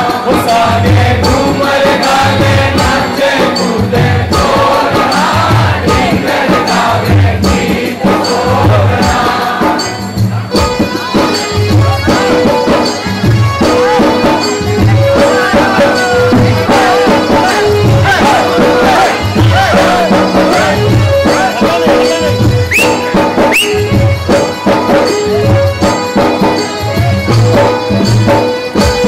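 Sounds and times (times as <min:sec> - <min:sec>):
group of men singing: 0:00.0 - 0:23.6
steady low drum beat: 0:00.0 - 0:29.0.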